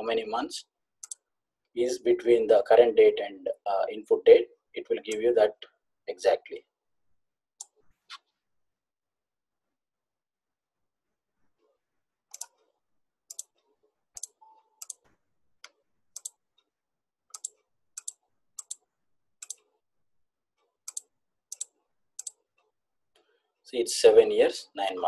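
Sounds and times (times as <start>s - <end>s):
computer mouse clicks: 1.0s - 1.3s, 7.6s - 8.3s, 12.3s - 12.7s, 13.3s - 16.7s, 17.3s - 19.8s, 20.6s - 23.3s.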